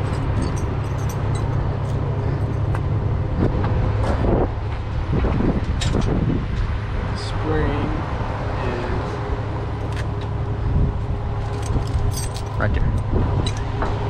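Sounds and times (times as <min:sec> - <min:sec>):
metal chains clanking: 0:00.0 - 0:02.8, 0:11.4 - 0:13.8
diesel truck engine idling: 0:00.0 - 0:14.0.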